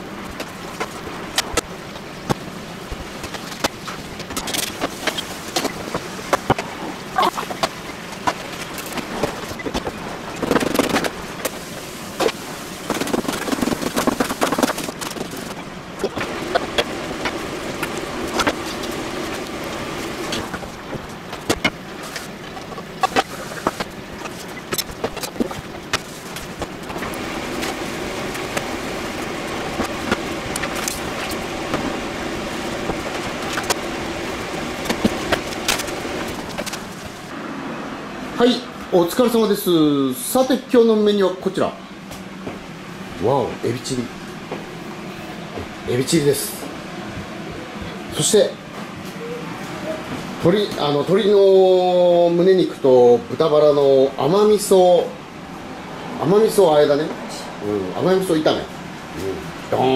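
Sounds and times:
pot boiling: 0.0 - 37.5
gas burners hissing: 0.0 - 59.9.

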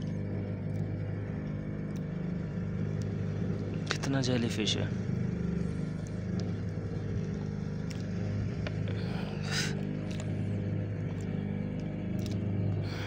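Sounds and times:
boat engine humming: 0.0 - 13.0
light ticks: 0.6 - 2.2, 2.9 - 4.1, 5.9 - 6.8.

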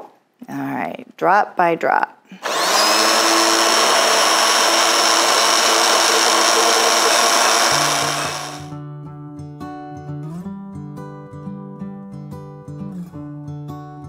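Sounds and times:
immersion blender whining: 2.4 - 8.7.

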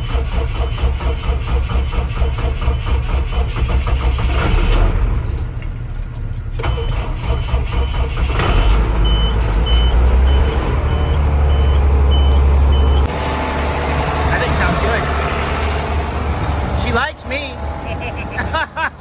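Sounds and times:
truck engine running: 0.0 - 19.0
dashboard warning beeps: 9.0 - 13.1.

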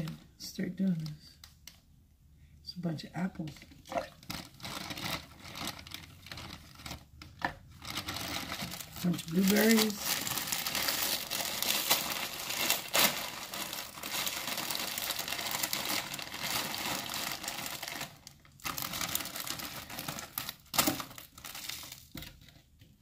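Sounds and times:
plastic bag crinkling: 3.4 - 22.7.

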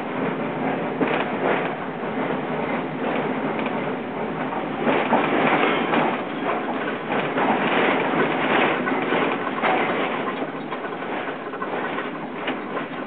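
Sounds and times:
tram wheels rattling on rails: 0.0 - 13.0.

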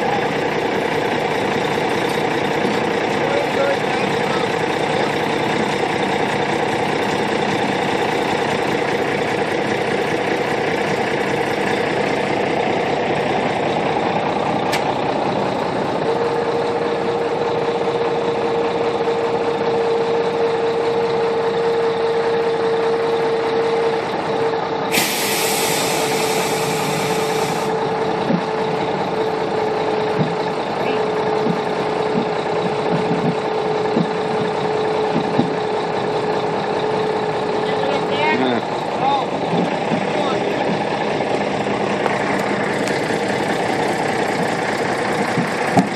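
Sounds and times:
truck engine running: 0.0 - 45.9
hiss of air: 24.9 - 27.7.

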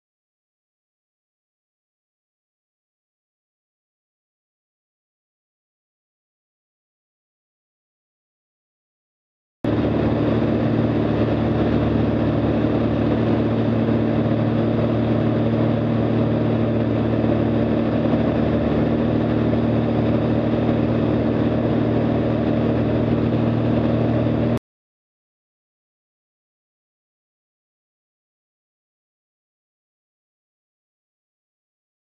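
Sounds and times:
aircraft engine droning in cockpit: 9.7 - 24.6.

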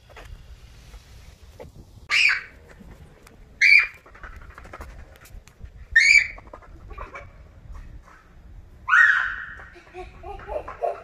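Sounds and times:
animal high-pitched calls: 2.1 - 2.6, 8.9 - 9.7.

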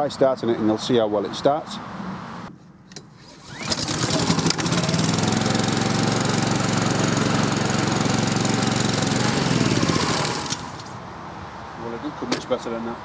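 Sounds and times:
lawn mower engine starting and running: 2.9 - 11.0.

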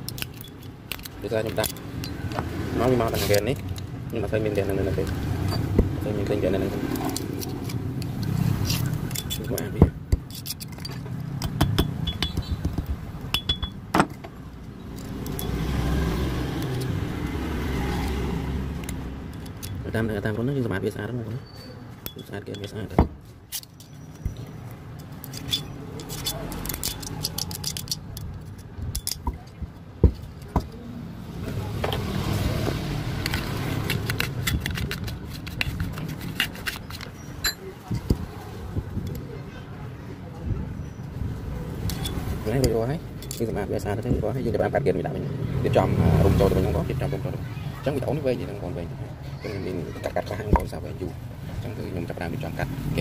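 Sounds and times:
stiff brush scrubbing metal: 33.2 - 37.2.

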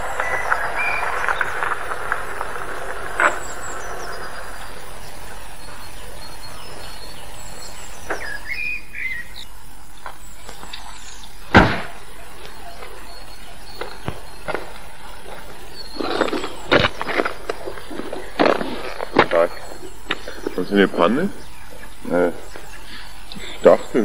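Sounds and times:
faint bird chirps: 0.0 - 24.0
steady hiss: 0.0 - 24.0
sharp knock: 11.5 - 12.0.

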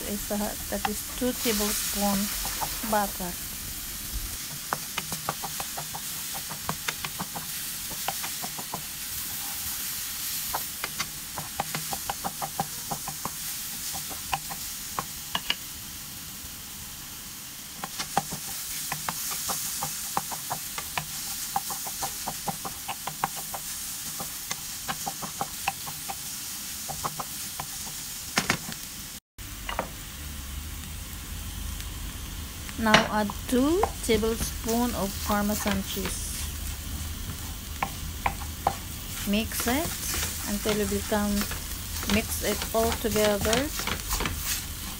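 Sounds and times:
mushrooms sizzling in a frying pan: 0.0 - 44.9
wooden spoon scraping a pan: 17.8 - 26.3, 32.9 - 44.9.

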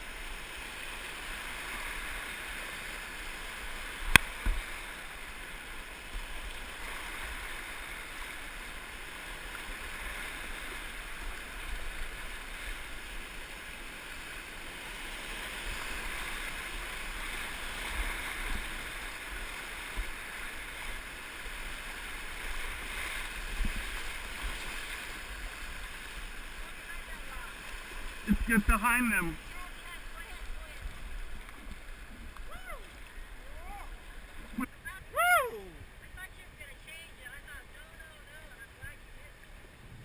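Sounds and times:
river rapids rushing: 6.4 - 35.9.

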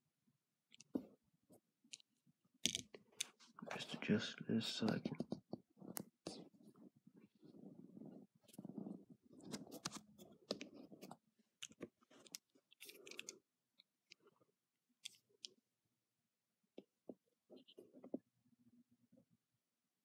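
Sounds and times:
small metal and plastic clicks: 1.9 - 3.4, 9.4 - 14.2.

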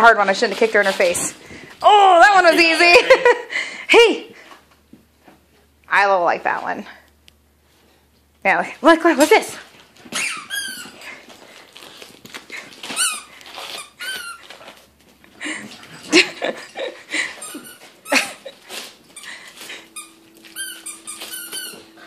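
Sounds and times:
squeaky toy squeaking: 10.1 - 11.1, 12.9 - 14.5, 17.4 - 18.4, 20.0 - 22.0.

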